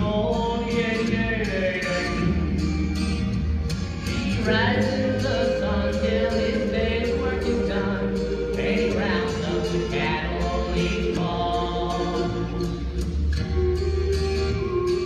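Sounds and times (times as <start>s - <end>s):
man singing country song: 0.0s - 3.2s, 4.2s - 12.8s
musical accompaniment with beat: 0.0s - 15.0s.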